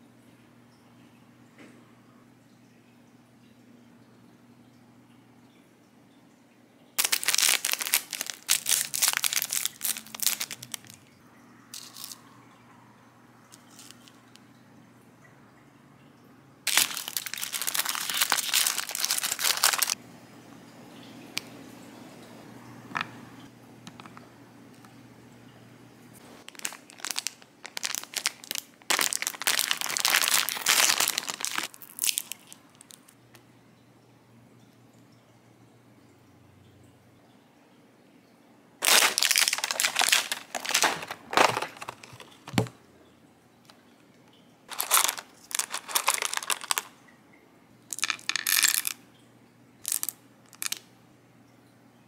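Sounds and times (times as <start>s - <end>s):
snack wrappers crinkling and tearing: 7.0s - 11.0s, 11.8s - 12.2s, 13.6s - 14.1s, 16.7s - 20.0s, 26.4s - 33.2s, 38.8s - 42.7s, 44.7s - 47.0s, 47.9s - 49.0s, 49.9s - 50.8s.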